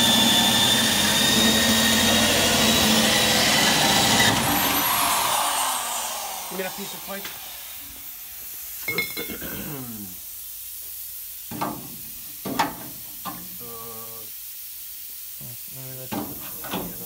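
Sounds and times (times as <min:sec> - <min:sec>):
steady hiss: 0:06.4 - 0:17.0
steel tube clanking on metal: 0:08.8 - 0:09.5.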